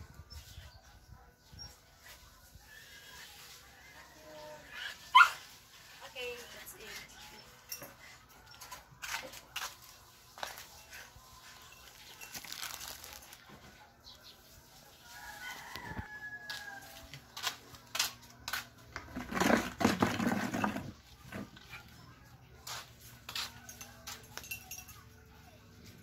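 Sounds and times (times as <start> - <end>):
rooster crowing: 15.0 - 17.2.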